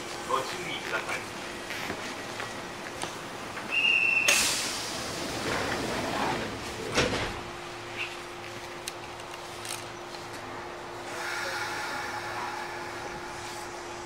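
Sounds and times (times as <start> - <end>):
train doors thudding shut: 3.6 - 7.6
short high whistle: 3.7 - 4.6
air hissing: 3.8 - 5.6.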